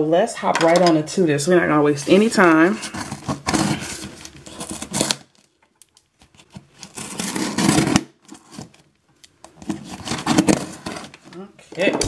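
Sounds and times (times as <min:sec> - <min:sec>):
hands scraping cardboard box: 0:02.1 - 0:05.3, 0:06.4 - 0:08.8, 0:09.6 - 0:11.2.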